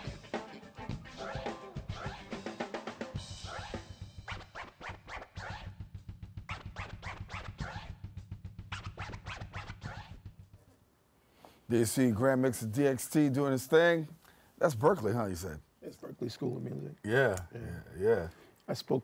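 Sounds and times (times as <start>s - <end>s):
drum kit beat: 0.0s - 10.6s
turntable scratching: 3.4s - 5.8s, 6.5s - 8.0s, 8.7s - 10.4s.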